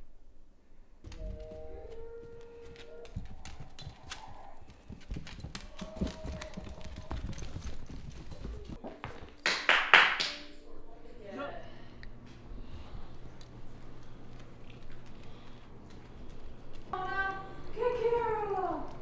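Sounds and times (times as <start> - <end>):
dogs scuffling: 1.1 - 9.4, 12.8 - 19.0
dog claws clicking on tile: 2.7 - 8.5.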